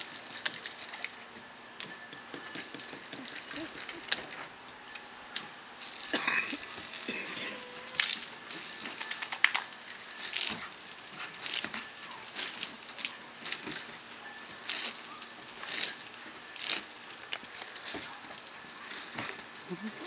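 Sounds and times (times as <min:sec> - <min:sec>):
hose water splashing on deck: 0:00.0 - 0:01.3, 0:05.8 - 0:20.0.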